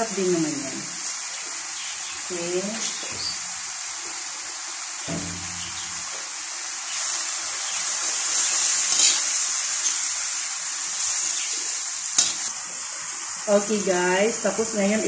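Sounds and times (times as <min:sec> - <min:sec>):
vegetables sizzling in a wok: 0:00.0 - 0:15.0
metal spatula scraping wok: 0:08.5 - 0:10.0.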